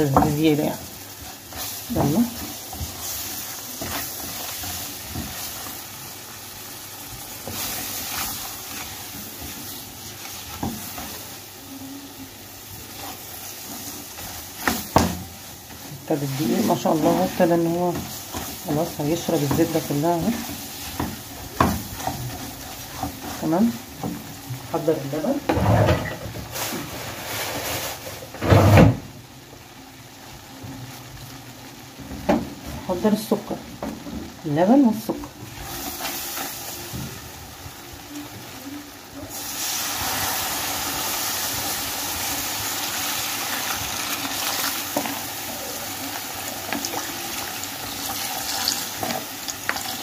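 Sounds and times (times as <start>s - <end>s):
spatula stirring and scraping: 0.0s - 11.5s, 12.6s - 24.9s
roux sizzling in a pan: 0.0s - 50.0s.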